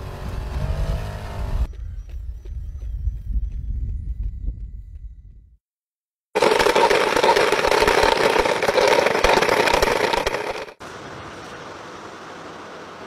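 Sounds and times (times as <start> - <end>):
wheeled robot rattling: 6.4 - 10.8.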